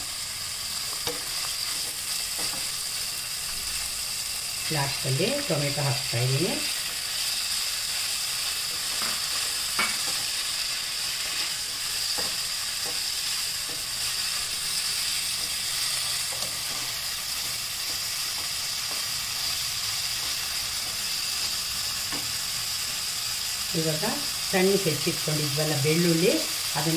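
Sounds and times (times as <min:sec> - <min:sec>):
vegetables sizzling in oil: 0:00.0 - 0:26.9
wooden spatula tapping and scraping: 0:01.0 - 0:02.8, 0:11.3 - 0:14.1, 0:15.3 - 0:19.2.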